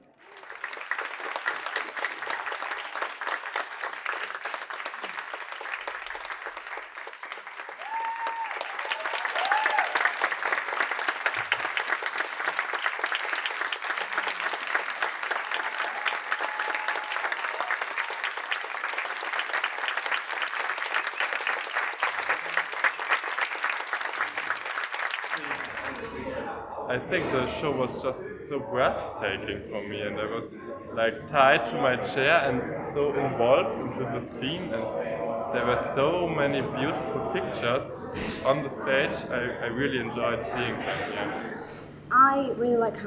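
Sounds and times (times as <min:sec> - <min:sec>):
audience applauding: 0:00.0 - 0:26.3.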